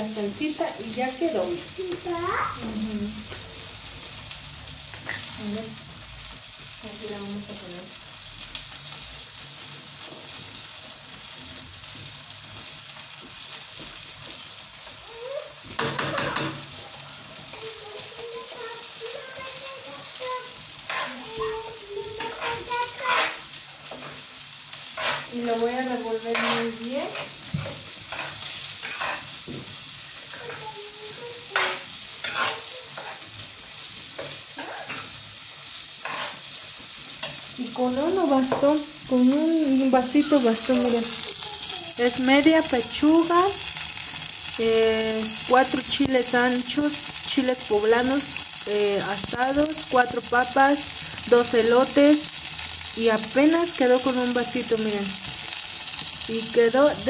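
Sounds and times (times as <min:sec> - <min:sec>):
food sizzling in pans: 0:00.0 - 0:57.0
metal spoon scraping a pot: 0:25.0 - 0:25.3, 0:26.3 - 0:27.3, 0:28.1 - 0:29.3, 0:31.5 - 0:33.2, 0:36.0 - 0:36.4.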